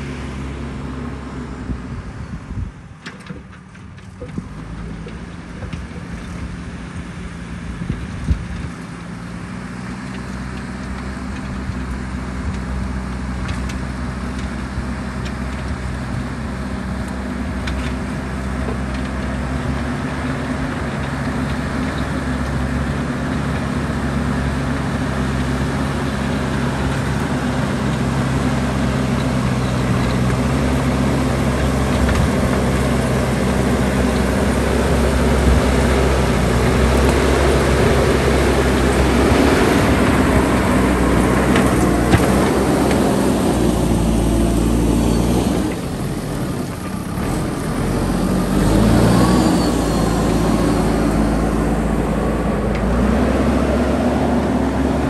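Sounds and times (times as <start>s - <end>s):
diesel engine under load: 0.0s - 55.0s.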